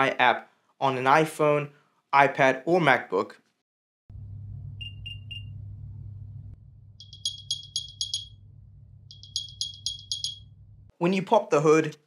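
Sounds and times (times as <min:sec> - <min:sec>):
low hum: 0:04.1 - 0:10.9
sharp high chirps: 0:07.0 - 0:08.4, 0:09.1 - 0:10.6
short high beeps: 0:07.0 - 0:08.4, 0:09.1 - 0:10.4.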